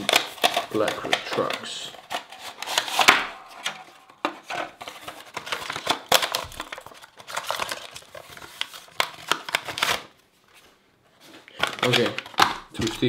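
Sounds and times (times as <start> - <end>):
packaging crinkling and rustling: 0.0 - 13.0.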